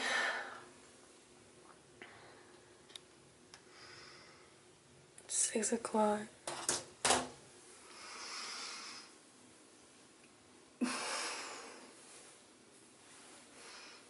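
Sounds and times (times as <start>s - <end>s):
woman breathing out: 0.0s - 0.7s.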